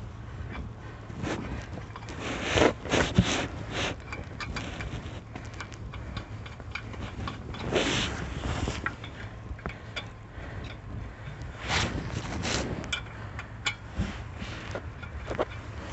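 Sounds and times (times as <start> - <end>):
lug nuts clicking on wheel studs: 1.6 - 11.6, 12.8 - 13.9, 14.7 - 15.9.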